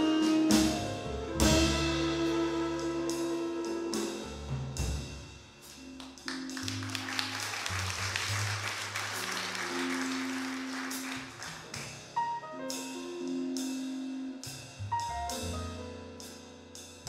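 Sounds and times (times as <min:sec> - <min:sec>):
upright bass: 0:00.0 - 0:12.2
jazz ballad: 0:00.0 - 0:17.0
piano notes: 0:00.0 - 0:17.0.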